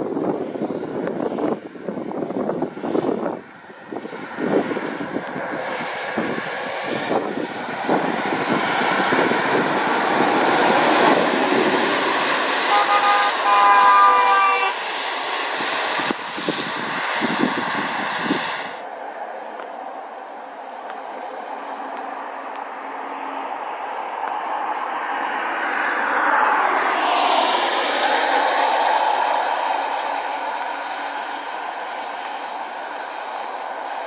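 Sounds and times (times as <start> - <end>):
lorry diesel engine passing: 3.2 - 34.0
tyre hiss on wet road: 10.4 - 18.8
lorry horn: 12.6 - 14.8.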